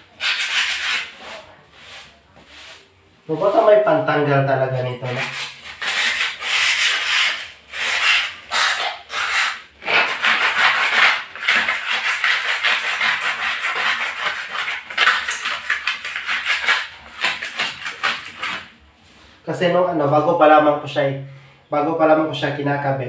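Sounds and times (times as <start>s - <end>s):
scraper scraping cement off tiles: 0.0s - 3.8s, 4.8s - 18.7s.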